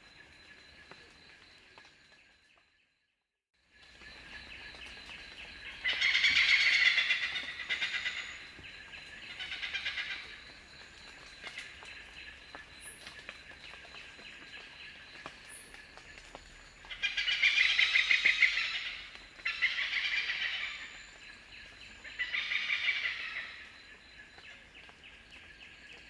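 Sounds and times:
hornbill cackling call: 5.8 - 8.4.

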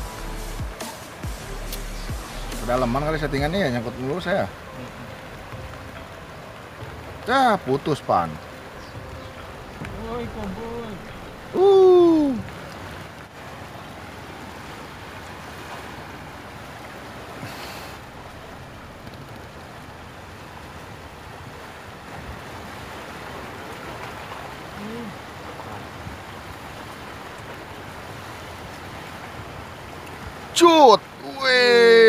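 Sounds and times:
choppy sea water: 0.0 - 32.0
wind rushing: 9.0 - 12.9.

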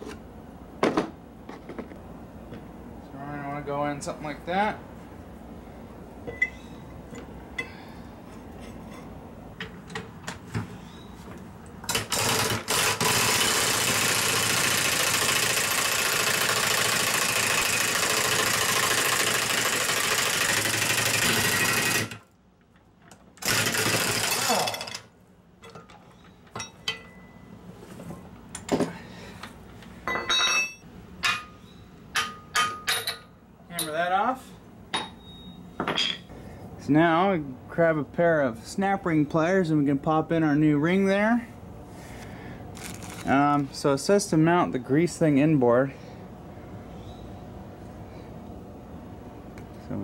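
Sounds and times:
pneumatic impact wrench: 11.9 - 22.2, 23.4 - 25.0.

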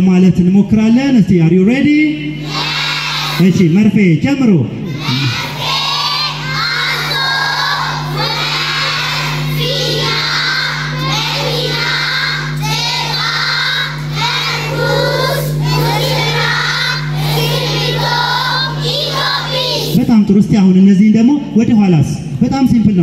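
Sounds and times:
steady low hum: 0.0 - 23.0
children chanting in unison: 2.4 - 3.5, 4.8 - 20.0.

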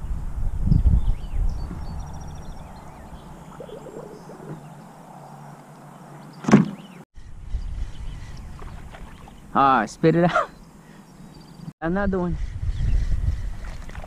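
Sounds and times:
wind rumble on microphone: 0.0 - 4.8, 7.2 - 9.8, 11.8 - 14.0.

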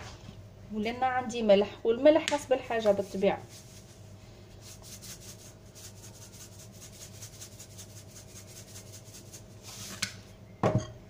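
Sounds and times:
salt rattling in shaken canister: 2.6 - 10.0.

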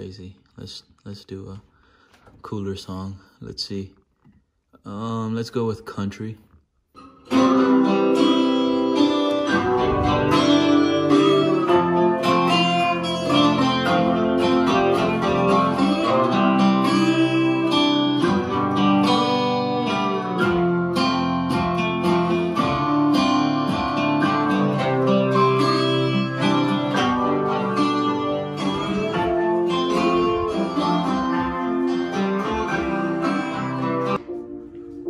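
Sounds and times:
country song with acoustic guitar: 7.0 - 34.8.

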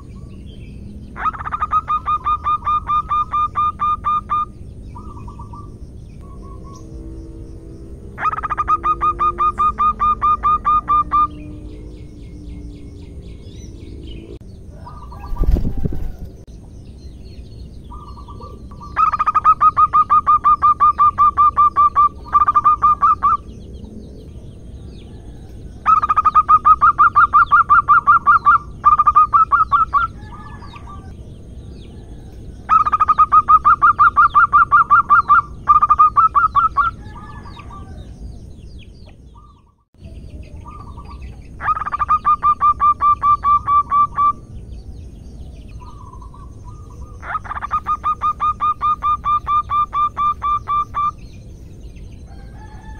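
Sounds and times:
dove cooing: 1.2 - 6.9, 8.2 - 12.6, 17.9 - 23.5, 25.1 - 31.1, 40.6 - 44.4, 45.8 - 51.2.

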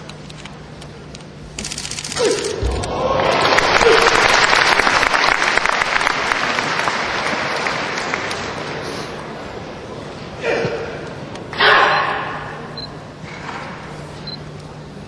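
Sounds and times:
audience applauding: 2.7 - 8.8.

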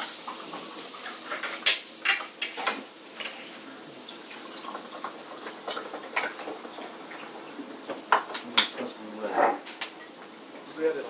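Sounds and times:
cutlery clicking against plates: 1.3 - 3.4.

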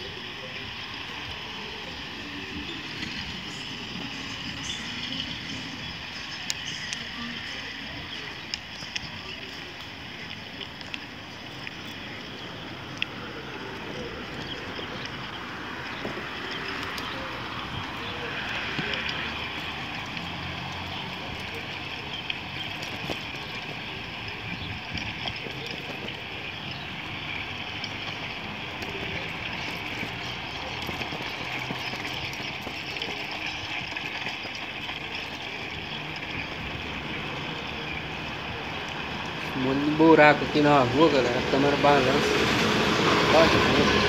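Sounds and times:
bicycle tyres rolling on asphalt: 0.0 - 44.0
faint clicks: 8.4 - 12.0
wind over microphone: 24.4 - 26.4.

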